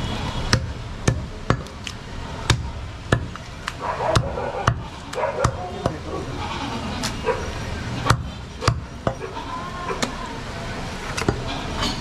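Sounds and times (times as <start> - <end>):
market noise hum: 0.0 - 12.0.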